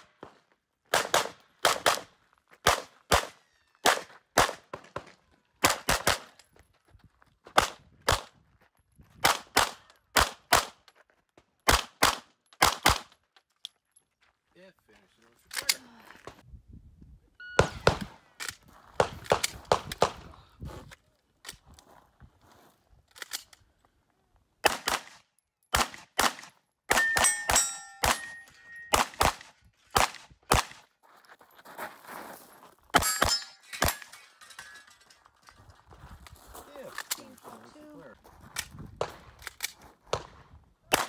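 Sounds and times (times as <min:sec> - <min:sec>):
metallic ring of steel targets: 0:26.9 - 0:29.1, 0:32.9 - 0:35.5.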